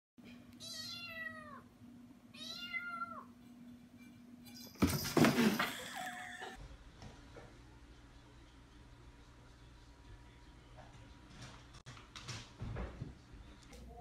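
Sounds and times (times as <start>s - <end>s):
thump and scuffle on tile floor: 4.6s - 5.9s, 11.3s - 13.2s.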